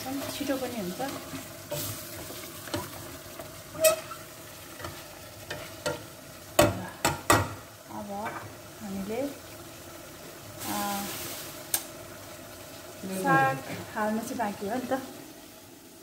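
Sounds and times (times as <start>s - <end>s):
faint sizzle of frying food: 0.0s - 16.0s
spatula scraping a metal pot: 3.7s - 6.0s.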